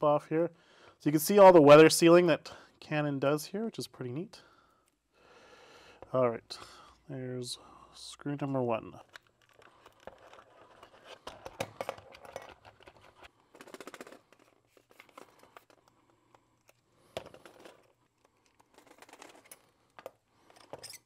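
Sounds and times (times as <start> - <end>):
lens parts clicking and scraping: 9.0 - 21.0.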